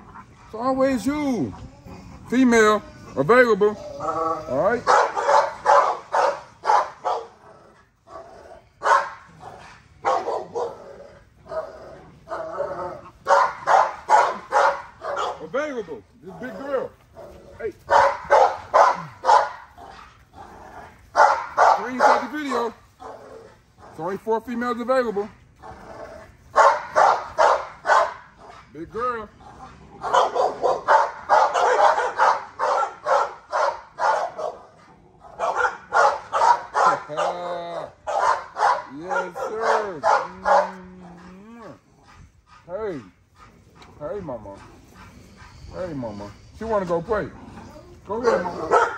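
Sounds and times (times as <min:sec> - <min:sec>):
dog barking: 0:04.8 - 0:07.4, 0:08.8 - 0:10.8, 0:13.2 - 0:15.5, 0:17.9 - 0:20.1, 0:21.1 - 0:23.2, 0:26.5 - 0:28.6, 0:30.0 - 0:41.4, 0:48.2 - 0:48.9.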